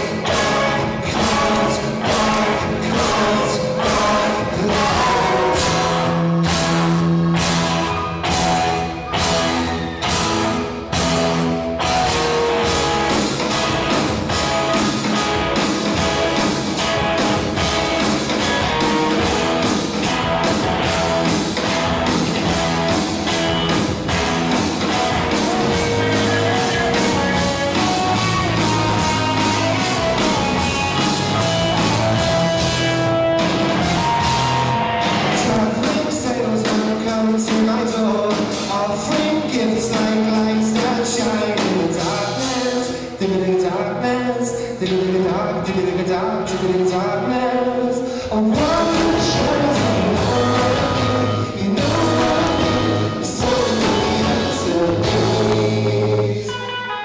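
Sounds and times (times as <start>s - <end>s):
person singing: 0.0s - 10.3s, 24.8s - 57.0s
live rock band: 0.0s - 57.0s.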